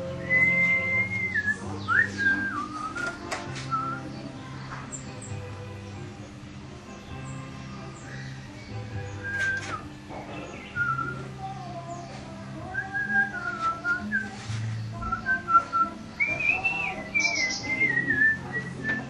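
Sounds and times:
song playing on a stereo: 0.0 - 19.0
man whistling a tune: 0.2 - 3.1, 9.2 - 9.9, 15.1 - 19.0.

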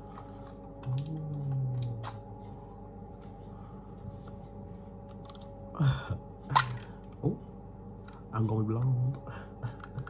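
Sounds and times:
man humming low: 0.7 - 2.5, 5.7 - 6.3.

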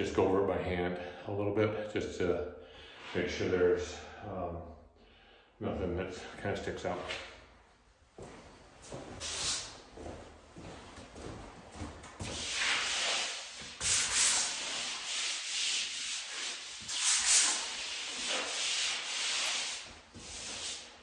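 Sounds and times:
hand rubbing over drywall: 9.1 - 21.0.

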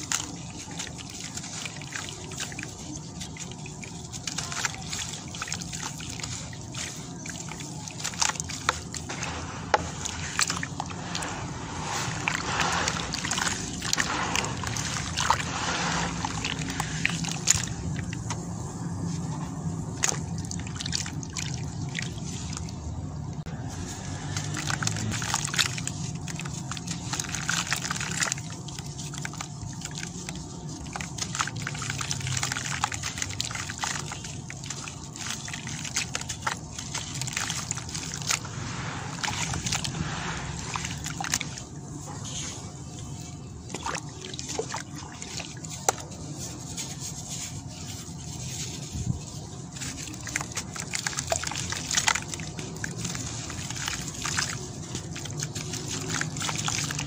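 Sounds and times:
gritty crunches of crumbling cement: 0.0 - 22.5, 23.5 - 44.2
water sloshing and trickling: 0.0 - 57.0.

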